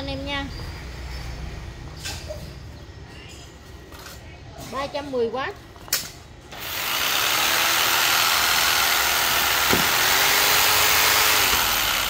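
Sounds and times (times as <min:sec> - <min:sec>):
jigsaw motor whirring: 0:06.5 - 0:12.0.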